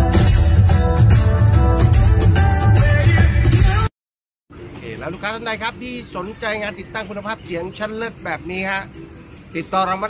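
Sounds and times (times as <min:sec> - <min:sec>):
acoustic guitar music with bass: 0:00.0 - 0:03.9.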